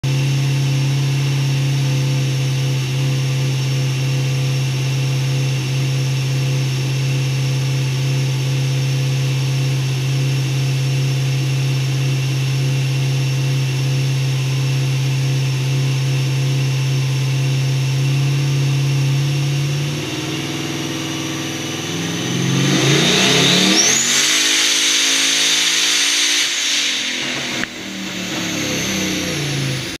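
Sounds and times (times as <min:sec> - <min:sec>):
car engine revving on dynamometer: 0:00.0 - 0:30.0
high whine: 0:18.6 - 0:30.0.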